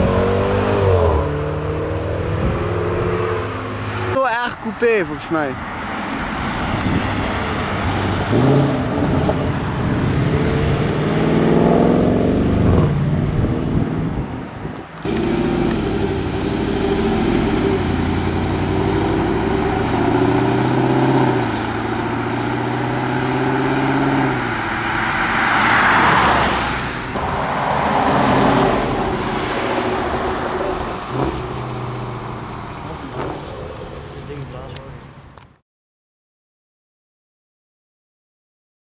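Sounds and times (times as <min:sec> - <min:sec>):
car passing by rush: 0:04.8 - 0:13.8, 0:15.0 - 0:34.7
engine accelerating: 0:15.1 - 0:25.0.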